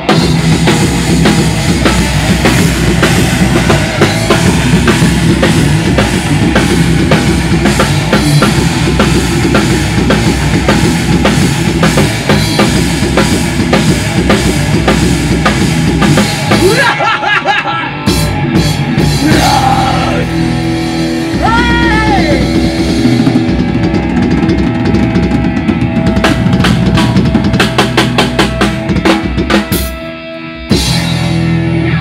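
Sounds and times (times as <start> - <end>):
drum kit played hard: 0.0 - 32.0
heavy metal backing track: 0.0 - 32.0
bent gliding notes: 20.2 - 29.4.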